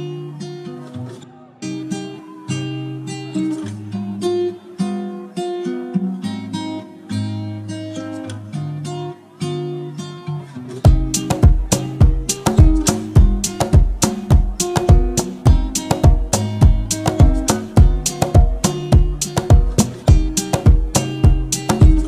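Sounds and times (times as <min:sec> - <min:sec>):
acoustic guitar playing: 0:00.0 - 0:22.0.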